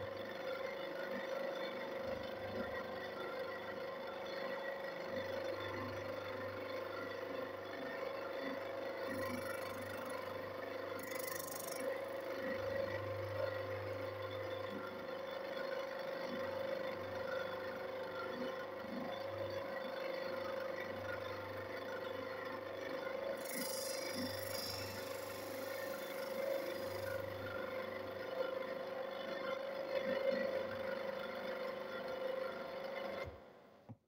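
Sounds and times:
grinding wheel hissing on chain: 0:09.1 - 0:12.4, 0:23.4 - 0:28.0
electric motor whining: 0:23.4 - 0:27.7.

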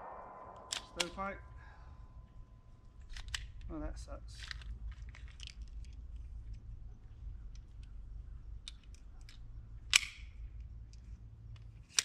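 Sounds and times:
pistol shot: 0:00.0 - 0:01.5
pistol handling clicks: 0:02.9 - 0:03.7, 0:04.4 - 0:06.7, 0:07.4 - 0:12.0.

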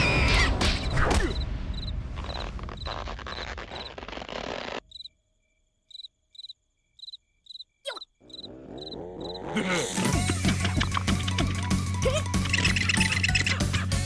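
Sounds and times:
crickets chirping: 0:01.3 - 0:03.9, 0:04.8 - 0:09.4.

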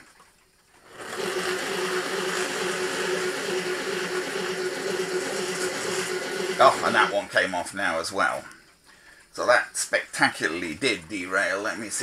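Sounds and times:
model train motor whining: 0:00.8 - 0:07.2.

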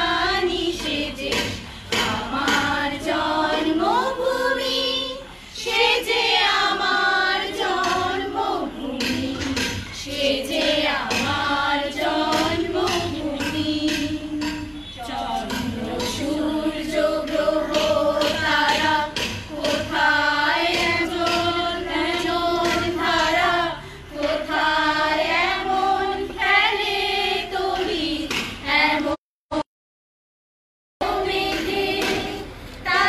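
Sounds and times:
group of voices singing in unison: 0:00.0 - 0:29.6, 0:31.0 - 0:33.0.

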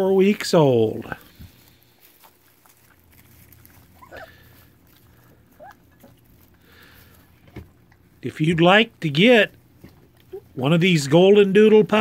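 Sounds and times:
puppies lapping and smacking: 0:01.3 - 0:08.2
puppy squeaks: 0:03.9 - 0:04.4, 0:05.6 - 0:06.1.

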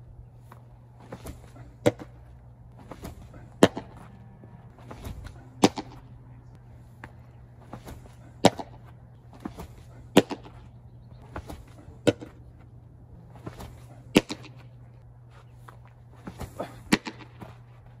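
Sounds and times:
steady low hum: 0:00.0 - 0:18.0
baseballs smacking into a mitt: 0:01.0 - 0:02.2, 0:02.8 - 0:04.1, 0:04.8 - 0:06.0, 0:09.4 - 0:10.6, 0:11.3 - 0:12.4, 0:13.4 - 0:14.6, 0:16.2 - 0:17.5.

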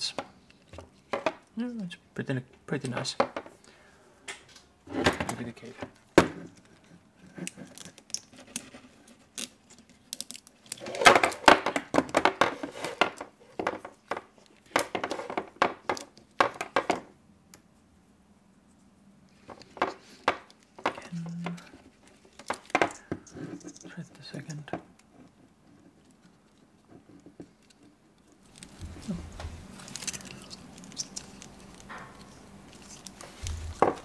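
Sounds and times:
clicks and rattles of small parts: 0:06.5 - 0:17.0, 0:19.3 - 0:34.0.

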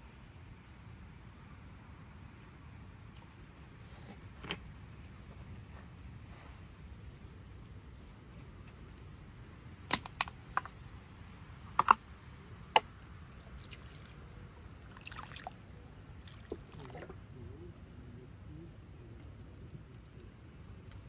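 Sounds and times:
low background noise: 0:00.0 - 0:21.0
sharp clicks and knocks: 0:11.7 - 0:12.0.

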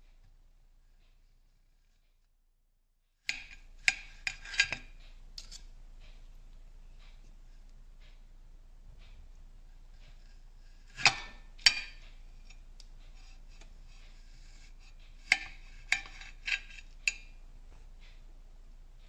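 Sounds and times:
knife scraping beetroot: 0:03.3 - 0:05.7, 0:13.2 - 0:17.2.

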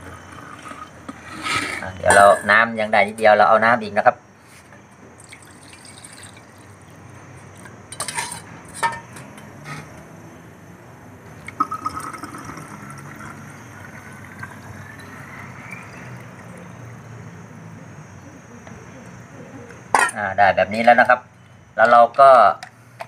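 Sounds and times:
liquid pouring into spray bottle: 0:05.2 - 0:06.7, 0:11.5 - 0:15.0
water pouring between steel bowls: 0:05.2 - 0:08.4, 0:11.4 - 0:16.6.

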